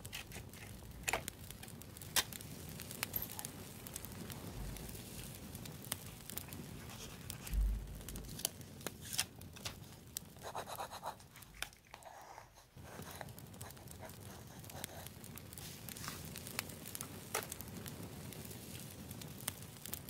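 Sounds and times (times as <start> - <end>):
sticker rubbing on paper: 10.4 - 11.3.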